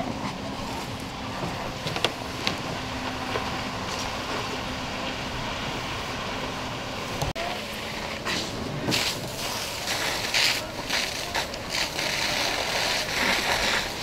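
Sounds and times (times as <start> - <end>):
engine-like rumble: 0.0 - 14.0
fire cracking: 7.9 - 14.0.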